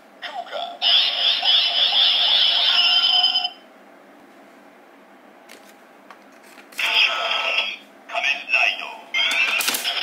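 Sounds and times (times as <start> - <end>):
toy electronic sound effect: 0.3 - 3.6.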